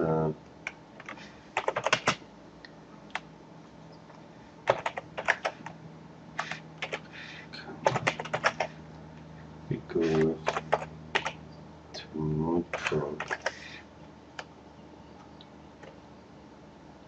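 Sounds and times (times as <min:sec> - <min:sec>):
faint low hum: 0:00.0 - 0:17.0
typing on computer keyboard: 0:00.7 - 0:02.2, 0:04.7 - 0:05.7, 0:06.4 - 0:07.1, 0:07.8 - 0:08.7, 0:10.4 - 0:11.4, 0:12.7 - 0:13.6.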